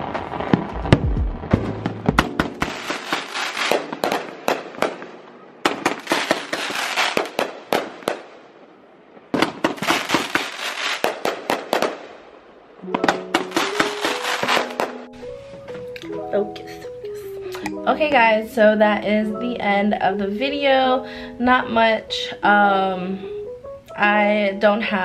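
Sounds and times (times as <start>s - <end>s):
fireworks crackling and popping: 0.0s - 8.4s, 9.3s - 15.1s
music: 0.6s - 2.8s, 12.8s - 25.0s.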